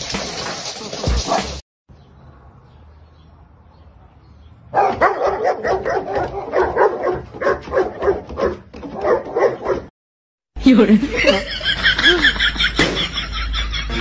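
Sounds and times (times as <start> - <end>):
dog barking: 4.7 - 9.9.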